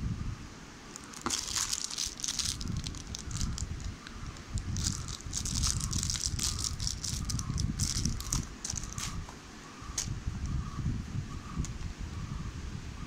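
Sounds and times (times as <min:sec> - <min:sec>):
plastic wrapping crinkling: 0:00.9 - 0:09.2.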